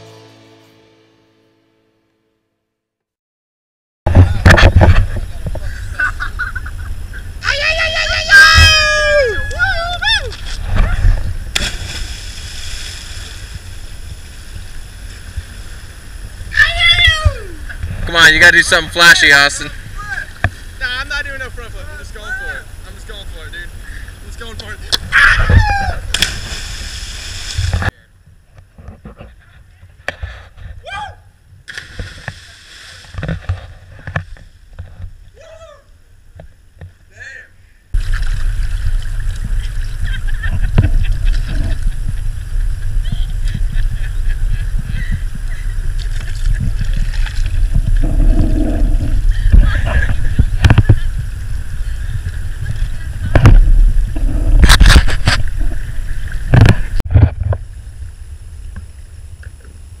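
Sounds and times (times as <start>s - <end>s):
wind on microphone: 9.4s - 18.2s, 38.0s - 58.0s
water splashing from paddles: 10.2s - 16.0s, 26.1s - 27.9s, 31.7s - 35.3s, 38.0s - 48.2s
person splashing into water: 11.5s - 13.5s.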